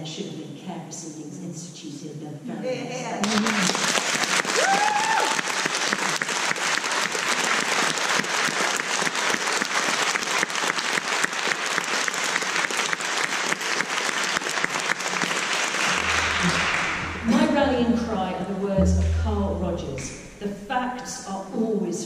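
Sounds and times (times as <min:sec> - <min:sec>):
audience applauding: 0:03.2 - 0:17.4
person whooping: 0:04.5 - 0:05.6.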